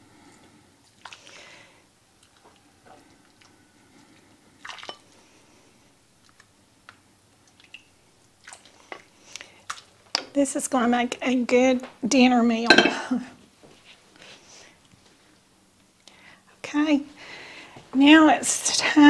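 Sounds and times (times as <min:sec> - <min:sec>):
ladle clinking: 0:12.7 - 0:13.1.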